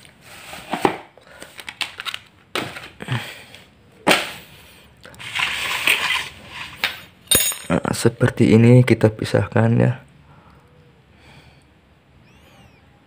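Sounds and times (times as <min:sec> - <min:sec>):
rustling and scraping: 0:00.0 - 0:03.0, 0:04.1 - 0:07.7.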